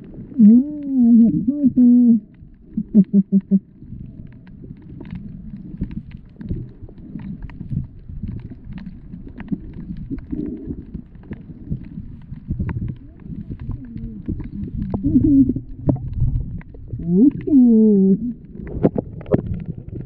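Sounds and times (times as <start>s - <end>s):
faint underwater clicks: 0.0s - 20.0s
underwater water rumble: 0.0s - 20.0s
wavering voice-like tone: 0.4s - 2.2s, 2.8s - 3.6s, 13.7s - 15.6s.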